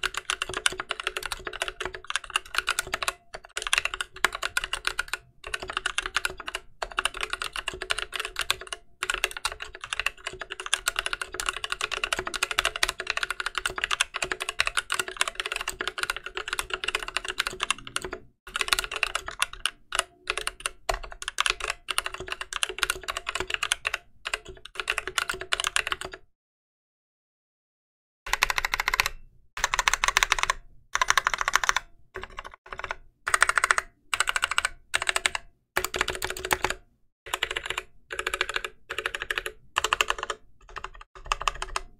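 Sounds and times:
mechanical keyboard typing: 0.0s - 26.2s, 28.3s - 41.9s.

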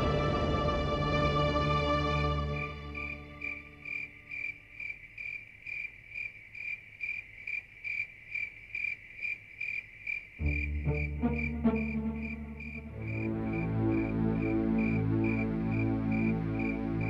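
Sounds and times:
background music with low notes: 0.0s - 4.0s, 10.4s - 17.0s
cricket chirping: 2.5s - 17.0s.

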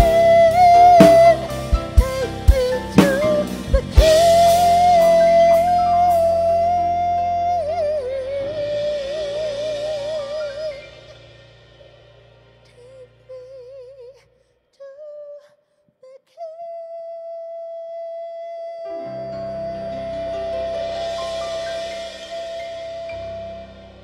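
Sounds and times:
woman singing with vibrato: 0.0s - 11.2s
worship band playing: 0.0s - 12.5s, 18.9s - 24.0s.

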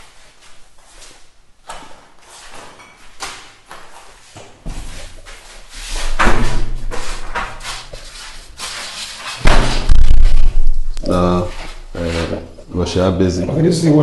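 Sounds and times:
loud knocks and rubbing: 4.7s - 12.7s
heavy low rumble: 9.8s - 11.6s.

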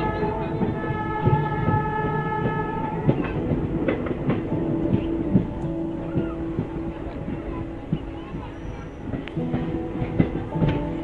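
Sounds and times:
train interior hum: 0.0s - 11.0s
wheels knocking over rail joints: 0.0s - 11.0s.

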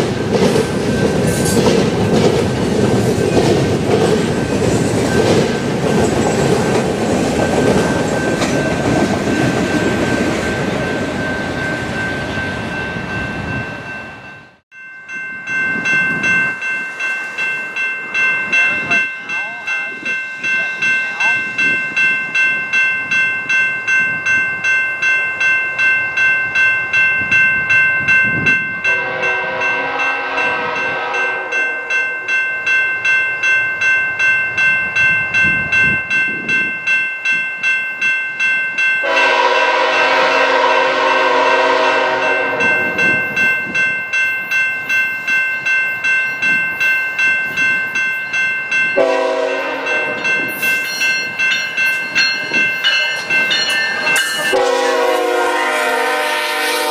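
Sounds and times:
crossing bell ringing: 0.0s - 56.9s
train air horn blasts: 28.9s - 31.9s, 39.0s - 43.0s, 49.0s - 50.2s, 54.5s - 56.9s.

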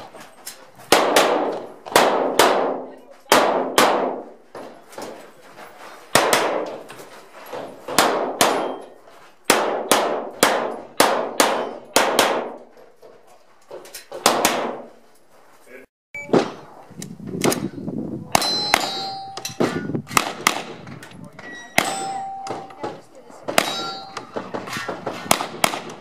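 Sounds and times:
pistol shots: 0.9s - 4.3s, 6.1s - 6.7s, 7.9s - 8.8s, 9.5s - 12.6s, 14.2s - 14.9s, 18.4s - 20.8s, 25.1s - 26.0s.

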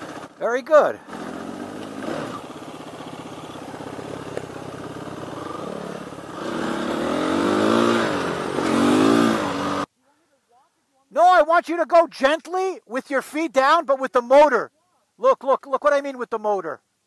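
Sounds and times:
dirt bike engines revving: 0.0s - 9.9s.

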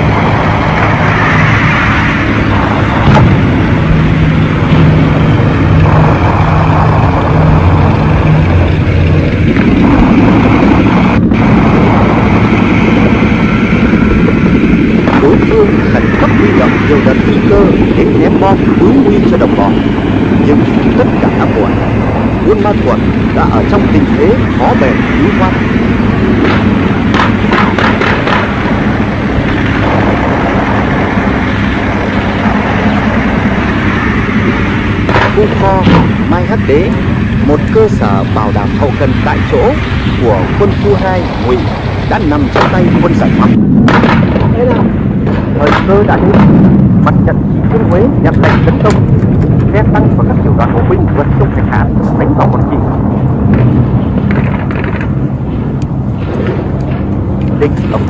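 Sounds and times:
heavy engines droning: 0.0s - 58.0s
sharp cracks: 26.3s - 30.1s, 35.0s - 36.2s, 42.3s - 42.9s, 43.8s - 46.7s.

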